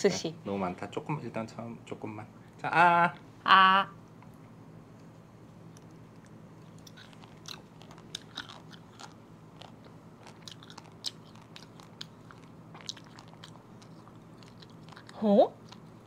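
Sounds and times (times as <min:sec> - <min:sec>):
person chewing with wet clicks: 0:05.7 - 0:16.0.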